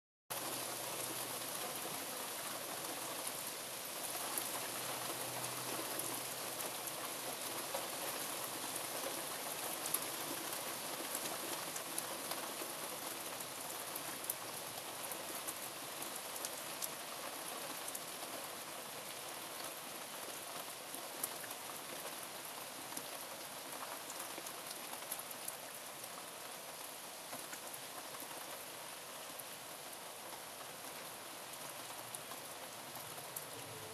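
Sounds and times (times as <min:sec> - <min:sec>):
heavy rain on leaves: 0:00.3 - 0:33.9.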